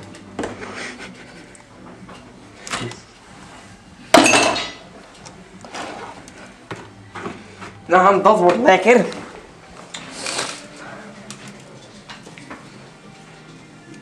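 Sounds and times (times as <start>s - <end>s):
loud kitchen clatter: 4.1s - 4.8s
utensils and jars clinking: 4.2s - 4.9s.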